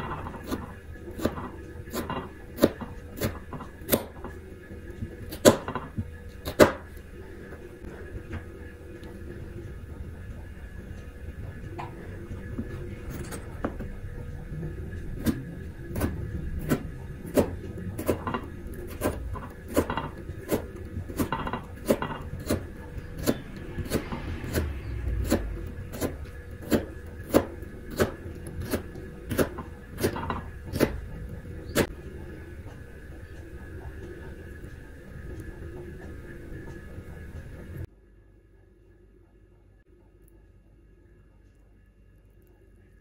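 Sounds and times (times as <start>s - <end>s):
knife slicing potato on board: 26.0s - 31.0s.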